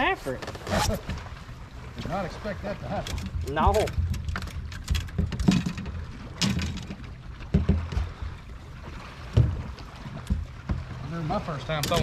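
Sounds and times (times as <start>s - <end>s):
water lapping against boat hull: 0.0s - 12.0s
irregular knocks: 4.2s - 8.3s.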